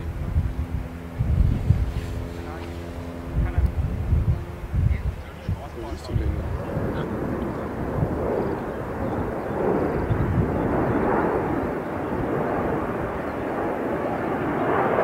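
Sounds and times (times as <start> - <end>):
jet airliner roar overhead: 0.0 - 15.0.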